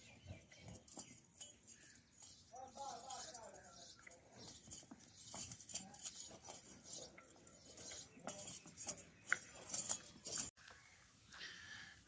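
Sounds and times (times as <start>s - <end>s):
horse hooves on dirt: 0.0s - 10.6s.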